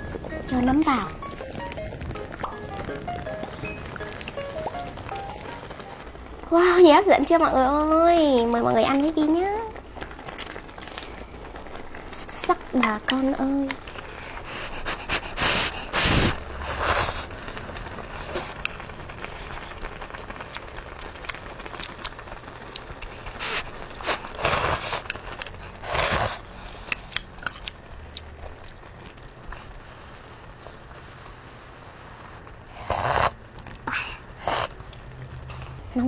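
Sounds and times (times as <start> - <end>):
slurping noodles: 14.0 - 18.6, 23.1 - 27.1, 32.2 - 34.8.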